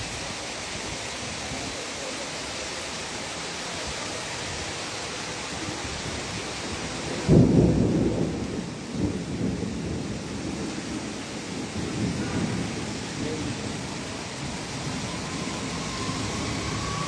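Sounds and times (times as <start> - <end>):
heavy rain hissing: 0.0 - 17.0
thunder clap rumbling: 6.0 - 17.0.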